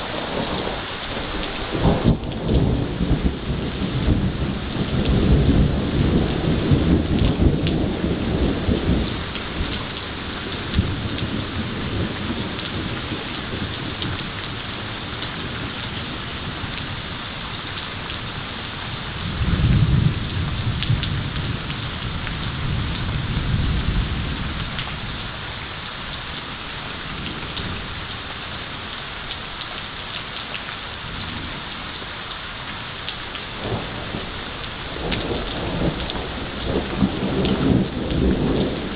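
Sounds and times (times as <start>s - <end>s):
thunder rumbling: 0.0s - 29.0s, 32.6s - 38.9s
rain falling: 0.0s - 38.9s
loud thunder peal: 1.7s - 9.1s, 35.0s - 38.9s.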